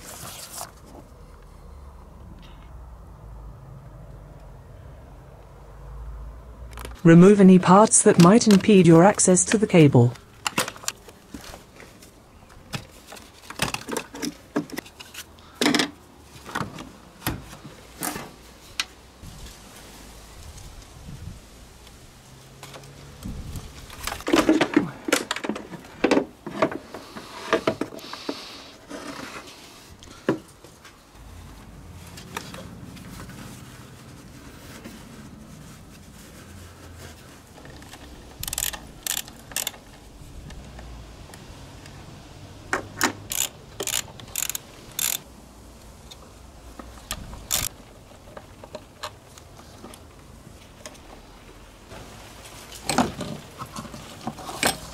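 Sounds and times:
hand tools clicking and scraping: 0:37.6 - 0:40.8, 0:42.8 - 0:45.3, 0:46.8 - 0:50.1, 0:52.4 - 0:54.9.

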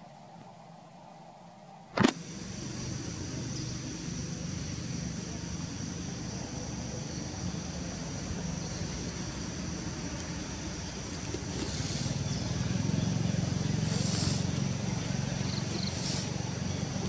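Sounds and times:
high insect drone: 0:00.0 - 0:17.0.

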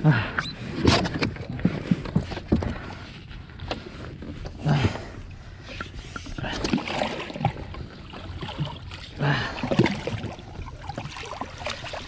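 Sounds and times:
seawater sloshing and splashing: 0:06.1 - 0:12.0.

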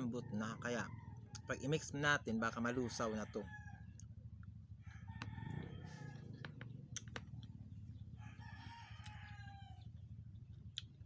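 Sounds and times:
rooster crowing: 0:00.0 - 0:04.0, 0:04.8 - 0:06.5, 0:08.2 - 0:09.9.

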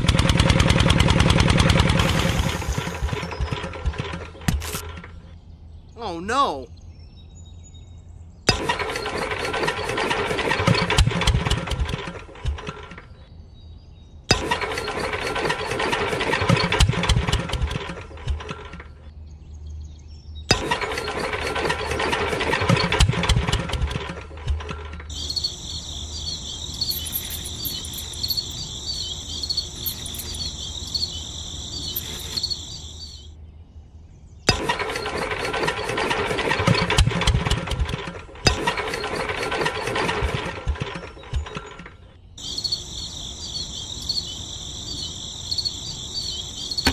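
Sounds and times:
high buzz with flickering ticks: 0:25.1 - 0:33.3.

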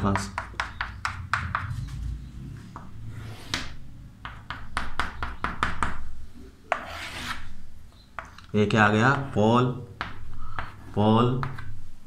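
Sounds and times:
chalk tapping on chalkboard: 0:00.0 - 0:02.0, 0:10.0 - 0:11.7
chalk scratching on chalkboard: 0:06.7 - 0:07.5.

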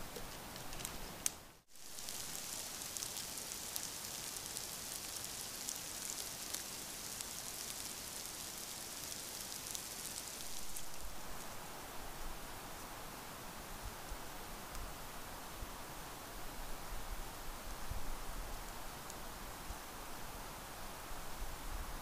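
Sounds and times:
rain pattering: 0:00.1 - 0:12.3.

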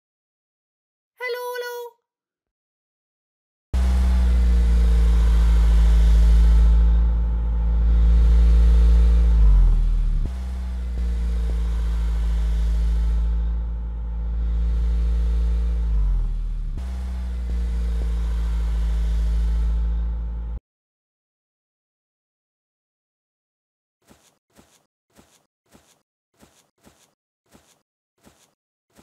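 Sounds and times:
heavy truck engine rumbling: 0:03.8 - 0:20.6.

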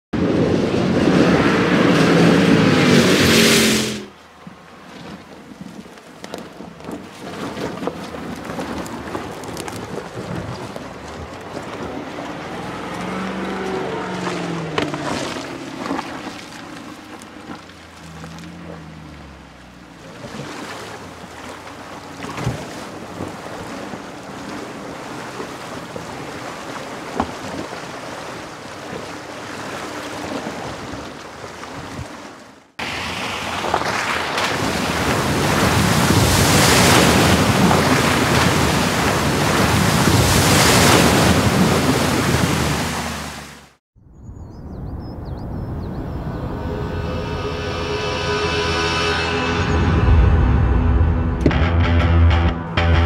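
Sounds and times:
water rushing and splashing: 0:00.2 - 0:43.8
rush of spray: 0:00.6 - 0:04.2, 0:32.8 - 0:43.7.

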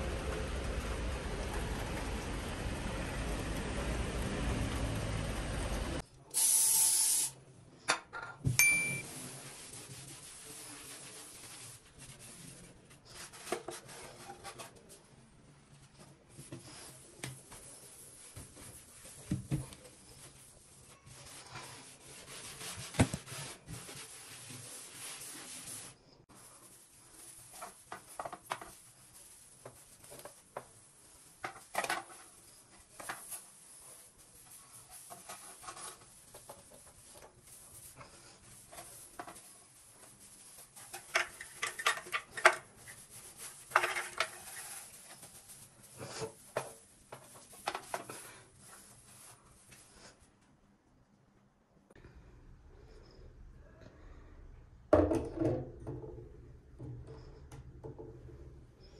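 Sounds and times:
sponge scrubbing hard surface: 0:09.1 - 0:14.2, 0:16.4 - 0:30.4.

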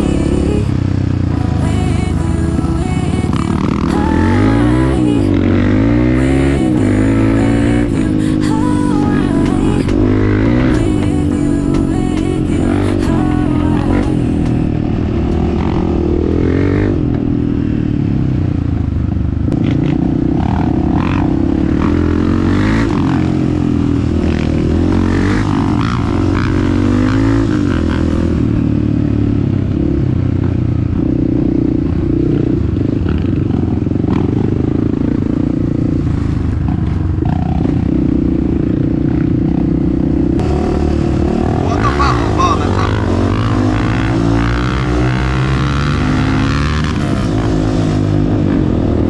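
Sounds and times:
motorbike engine revving: 0:00.0 - 0:49.0.

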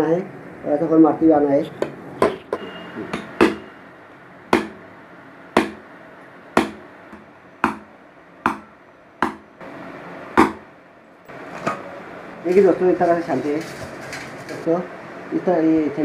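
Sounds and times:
hammer tapping nail into metal: 0:04.6 - 0:04.8, 0:08.5 - 0:09.4.

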